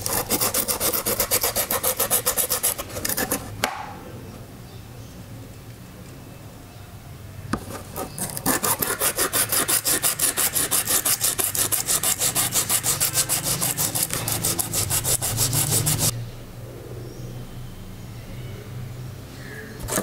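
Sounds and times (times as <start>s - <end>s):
sandpaper scraping metal: 0.0s - 3.5s, 7.6s - 16.1s.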